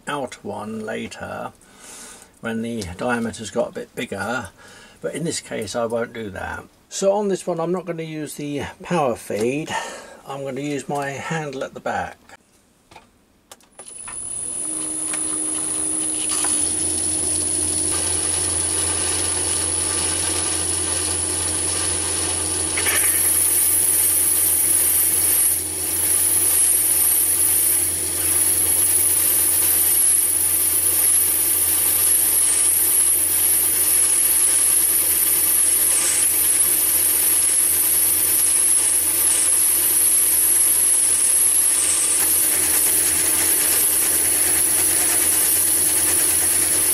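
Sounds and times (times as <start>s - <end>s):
high squeal of boring bar cutting: 13.9s - 46.9s
lathe running: 13.9s - 46.9s.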